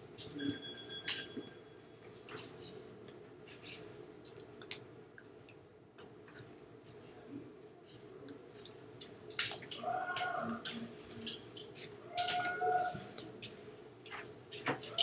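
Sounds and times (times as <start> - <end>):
hands rubbing and brushing: 2.2 - 2.6.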